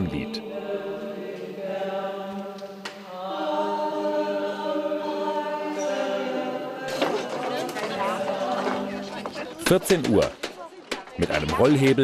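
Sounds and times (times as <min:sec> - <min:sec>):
women singing unaccompanied: 0:00.3 - 0:09.7.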